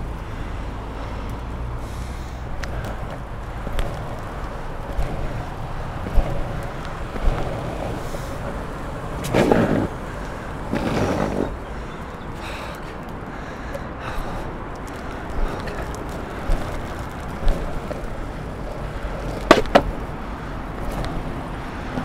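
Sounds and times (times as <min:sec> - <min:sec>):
road traffic: 0:00.0 - 0:22.0
longboard wheels rolling on gravel: 0:01.8 - 0:22.0.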